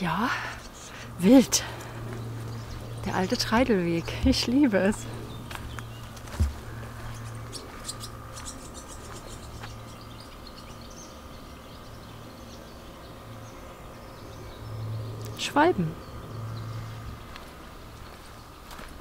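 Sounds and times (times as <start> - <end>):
steady low hum: 0.0 - 19.0
swallows twittering: 0.0 - 19.0.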